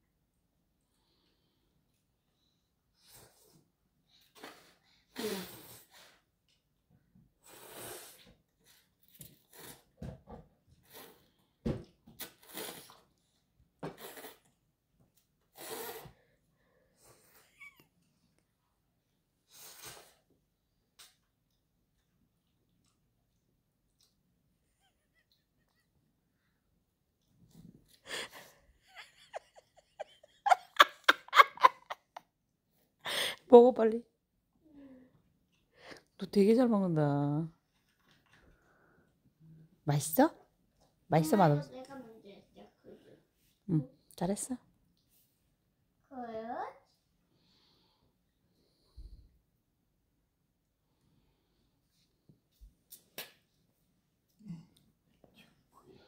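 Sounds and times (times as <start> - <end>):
child slurping noodles: 5.1 - 6.2, 7.4 - 10.0, 10.8 - 11.4, 12.2 - 13.2, 13.8 - 14.6, 15.5 - 16.2, 19.5 - 20.3
person laughing: 24.8 - 26.0, 28.0 - 32.2
child breathing: 27.9 - 28.8, 33.0 - 33.5.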